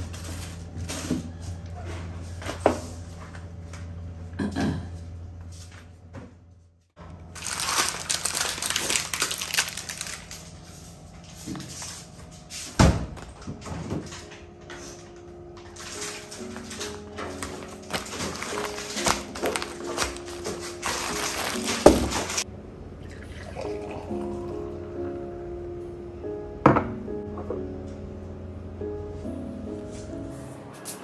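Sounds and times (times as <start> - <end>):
plastic bags crinkling: 7.1 - 11.1, 15.6 - 22.4
steady low hum: 9.1 - 30.3.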